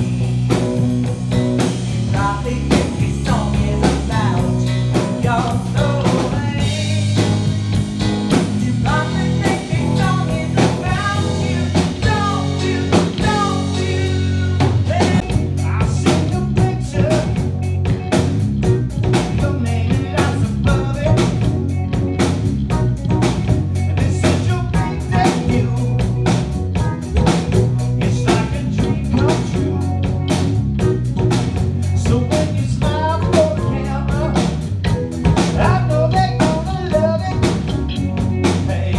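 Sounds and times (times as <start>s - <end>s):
bass guitar: 0.0s - 38.9s
drum kit: 0.0s - 38.9s.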